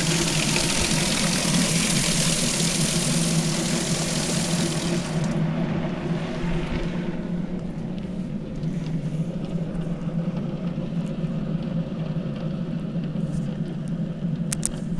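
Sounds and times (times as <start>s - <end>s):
hose water jet hissing: 0.0s - 5.5s
steady low hum: 0.0s - 14.9s.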